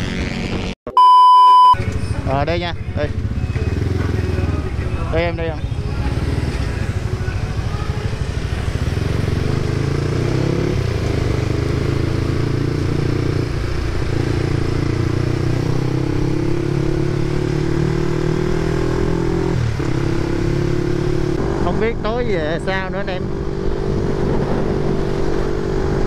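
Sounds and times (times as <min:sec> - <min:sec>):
wind and road noise: 0:00.0 - 0:00.8, 0:01.8 - 0:26.0
motorcycle engine running: 0:02.1 - 0:26.0.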